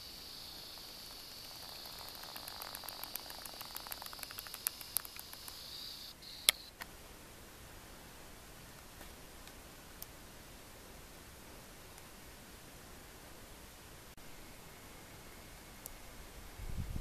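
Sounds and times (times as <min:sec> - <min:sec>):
high-pitched insect drone: 0:00.0 - 0:06.7
faint outdoor hiss: 0:00.0 - 0:17.0
light ticks and clicks: 0:00.5 - 0:05.7.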